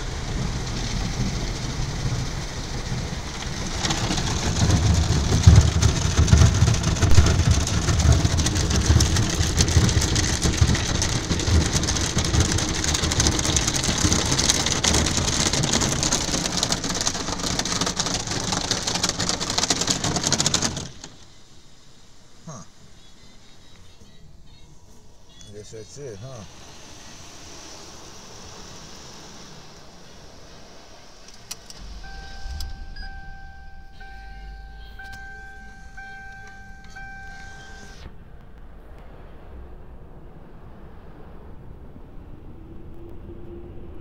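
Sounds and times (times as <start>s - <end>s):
heavy low rumble: 0.0s - 20.1s, 30.4s - 44.0s
water jets spraying a car: 0.0s - 22.4s, 25.5s - 38.0s.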